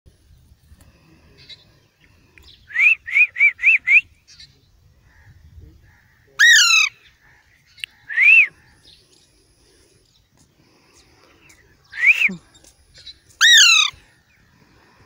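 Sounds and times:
parakeet squawking: 0:06.4 - 0:06.9, 0:13.4 - 0:13.9.

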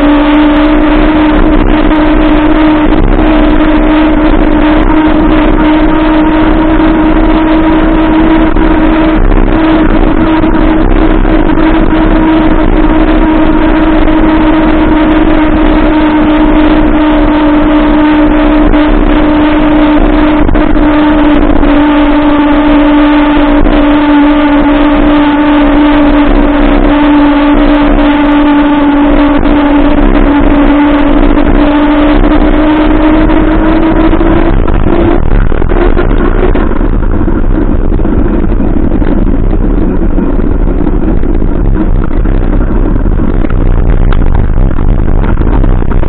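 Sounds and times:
electric motor whine: 0:00.0 - 0:46.0
wind rush on microphone: 0:00.0 - 0:46.0.

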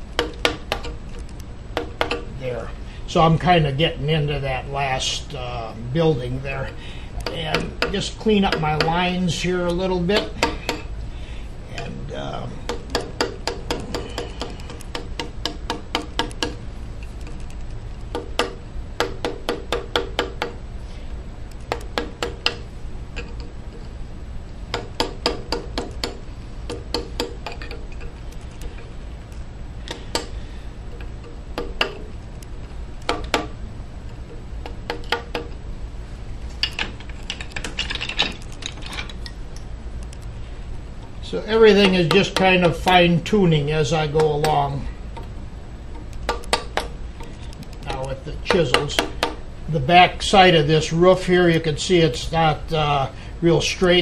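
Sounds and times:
low steady hum: 0:00.0 - 0:54.0
mallet tapping a chisel into wood: 0:00.2 - 0:01.0, 0:01.8 - 0:02.3, 0:07.2 - 0:09.0, 0:10.2 - 0:10.9, 0:12.7 - 0:16.6, 0:18.1 - 0:20.6, 0:21.7 - 0:22.6, 0:24.7 - 0:27.8, 0:29.9 - 0:30.4, 0:31.0 - 0:32.1, 0:33.0 - 0:33.6, 0:34.6 - 0:35.6, 0:41.8 - 0:42.9, 0:45.9 - 0:47.0, 0:48.5 - 0:49.4.

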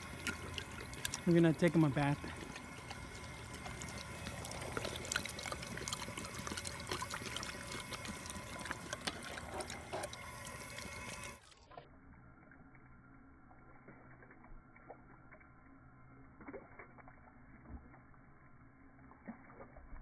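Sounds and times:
water running: 0:00.0 - 0:11.5
dogs lapping water: 0:00.0 - 0:11.8, 0:12.4 - 0:20.0.

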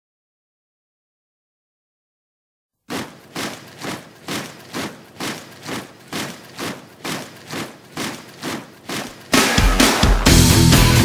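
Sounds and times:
rock backing track: 0:09.3 - 0:11.0.

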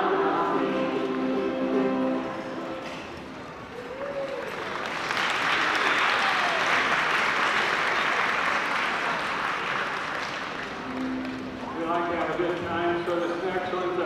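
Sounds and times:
audience applauding: 0:03.7 - 0:11.7.

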